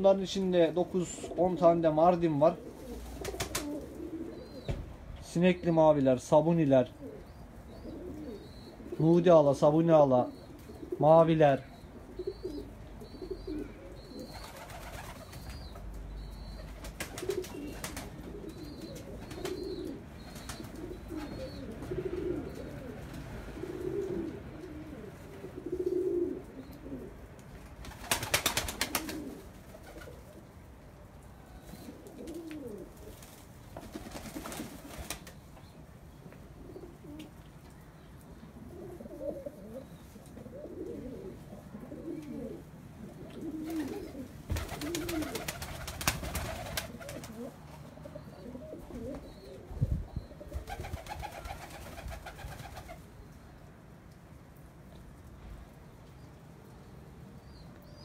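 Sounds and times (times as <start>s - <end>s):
pigeons cooing: 0.0s - 5.8s, 6.8s - 27.3s, 27.9s - 35.7s, 36.5s - 37.4s, 38.4s - 53.2s.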